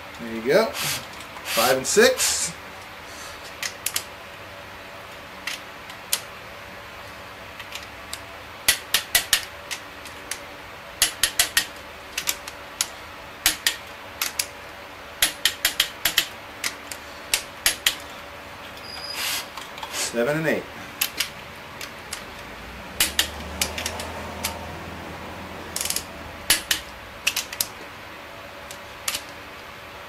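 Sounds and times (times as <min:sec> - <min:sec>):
torque wrench ratcheting clicks: 0:11.0 - 0:14.5, 0:15.2 - 0:18.1, 0:23.0 - 0:24.6, 0:25.8 - 0:27.7.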